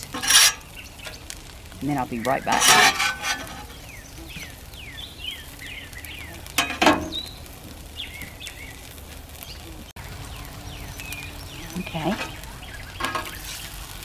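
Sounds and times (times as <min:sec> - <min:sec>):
patties sizzling on griddle: 0:00.0 - 0:14.0
small bird chirping: 0:03.6 - 0:13.8.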